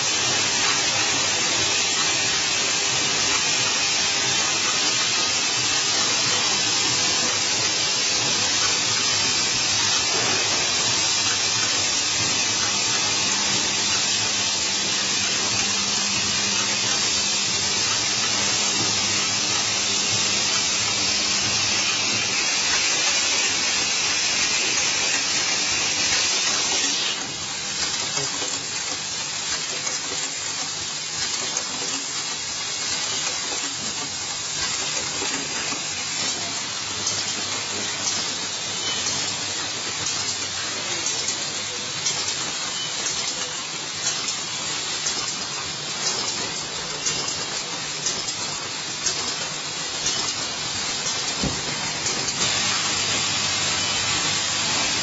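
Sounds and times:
assembly machines hissing: 0.0 - 55.0.

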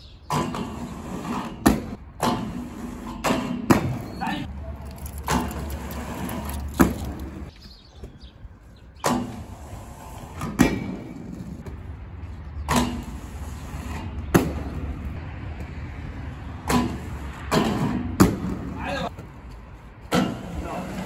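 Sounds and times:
skates grinding on steel handrail: 0.3 - 4.1, 12.7 - 14.7, 20.1 - 21.0.

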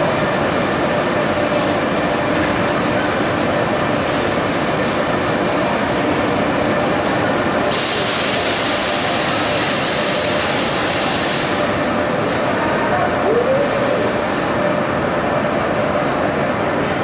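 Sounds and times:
train running in station: 0.0 - 17.0.

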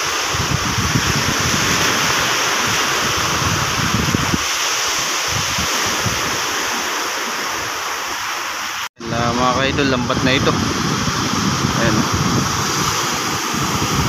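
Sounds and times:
sea surf washing on shore: 0.0 - 14.0
wind buffeting microphone: 0.0 - 14.0.

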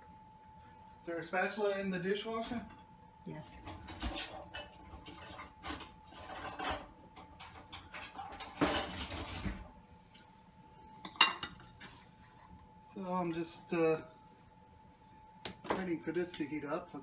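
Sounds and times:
dishes and utensils clattering: 3.6 - 9.8, 11.0 - 11.9.

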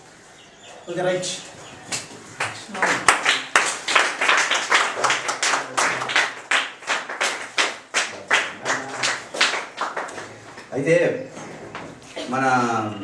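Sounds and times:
people clapping in rhythm: 1.9 - 10.7.

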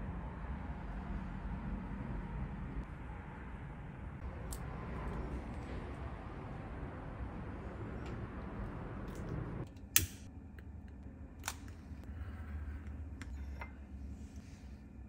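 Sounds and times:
outdoor background noise: 0.0 - 15.0
lighter igniter click: 10.0 - 10.3.

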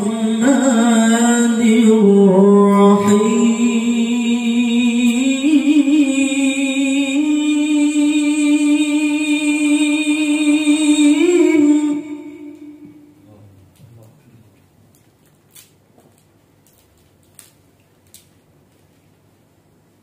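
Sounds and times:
man chanting into a microphone: 0.0 - 12.0.

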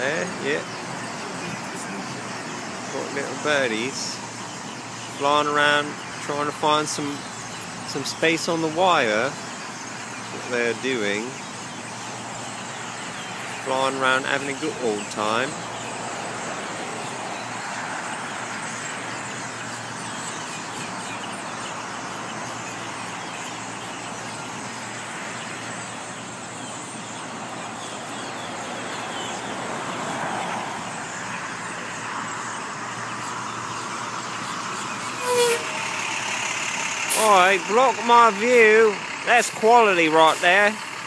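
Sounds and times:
road traffic rushing: 0.0 - 41.0
truck brakes hissing: 34.1 - 41.0.

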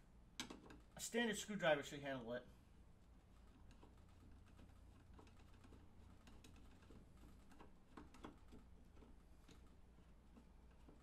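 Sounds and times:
screwdriver clicking and scraping: 3.5 - 11.0.

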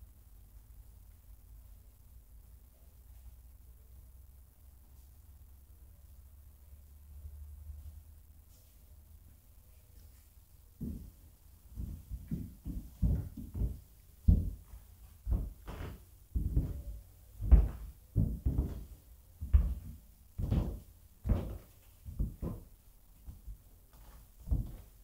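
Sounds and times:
footsteps on wooden floor: 10.8 - 25.0.

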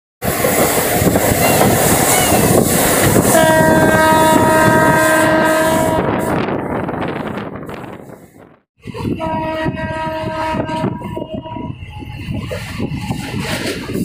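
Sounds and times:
train running on track: 0.2 - 14.0
train horn chord: 3.3 - 6.5, 9.1 - 12.0.

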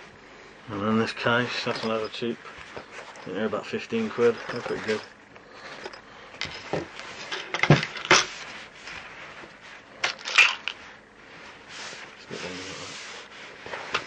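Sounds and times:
knocks and clicks of handling: 5.8 - 8.3.

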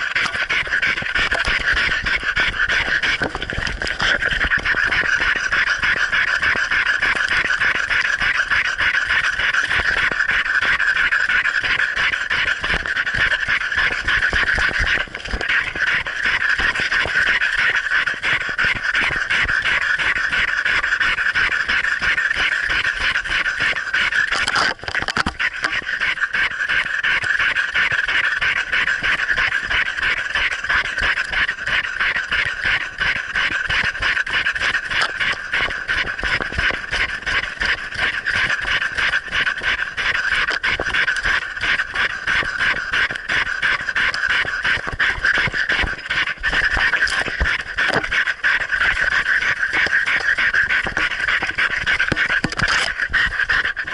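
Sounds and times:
dog panting: 32.5 - 53.9.

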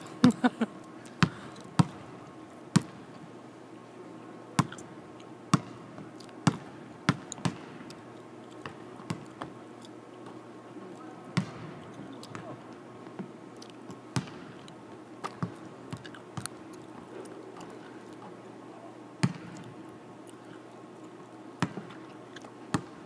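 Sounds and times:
basketballs bouncing on hardwood: 5.5 - 7.8, 8.6 - 9.5, 11.4 - 11.7, 13.9 - 14.5, 15.3 - 16.0, 19.2 - 19.6, 21.6 - 21.9.

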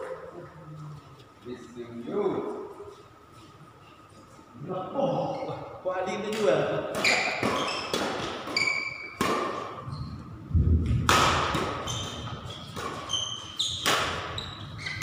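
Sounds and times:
rackets hitting shuttlecock: 6.3 - 9.8, 10.9 - 14.4
court shoes squeaking: 6.9 - 10.3, 11.1 - 15.0.

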